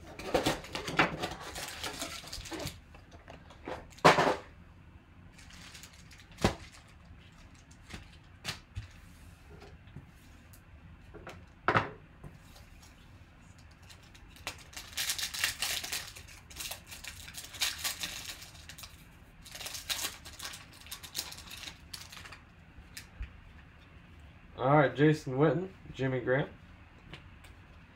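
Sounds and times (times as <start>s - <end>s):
foil pack tearing and crinkling: 0.2s - 2.8s, 5.4s - 8.7s, 13.7s - 22.4s.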